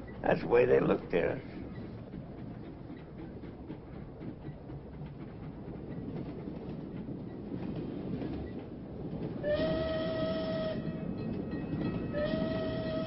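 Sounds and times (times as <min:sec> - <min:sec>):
train rumbling: 0:00.0 - 0:13.0
train whistle blast: 0:09.4 - 0:11.0, 0:12.2 - 0:13.0.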